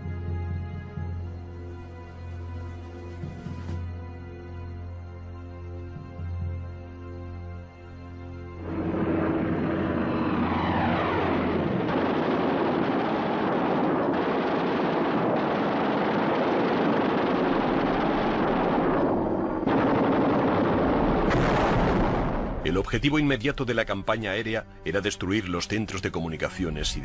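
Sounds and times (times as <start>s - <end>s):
propeller plane engines running: 5.5s - 21.0s
falling whine: 8.6s - 22.7s.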